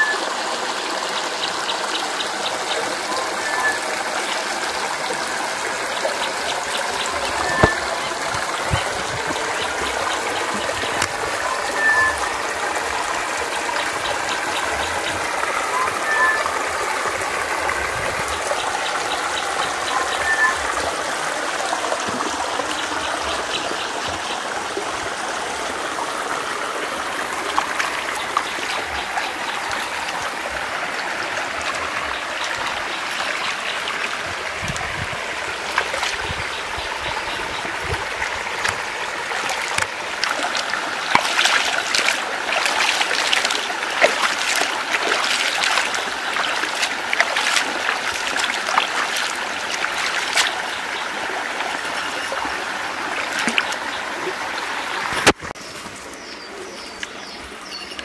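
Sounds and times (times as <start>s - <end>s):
stream water trickling: 0.0s - 58.0s
hands splashing water: 6.5s - 12.1s, 37.8s - 50.9s.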